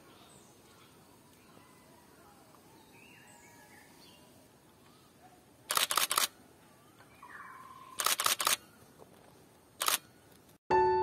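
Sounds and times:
camera shutter clicking: 0:05.7 - 0:06.4, 0:08.0 - 0:08.6, 0:09.8 - 0:10.1
faint bird chirps: 0:06.2 - 0:09.0.

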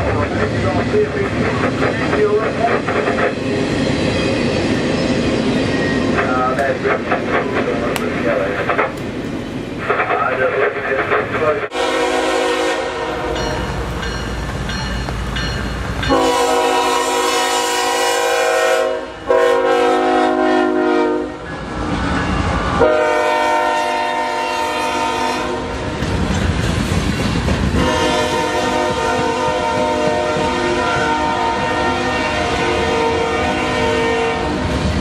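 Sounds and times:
locomotive rumble: 0:00.0 - 0:35.0
locomotive air horn blasts: 0:11.7 - 0:13.6, 0:16.1 - 0:21.4, 0:22.8 - 0:25.7, 0:27.8 - 0:34.6
wheels clacking over rail joints: 0:25.7 - 0:27.8.

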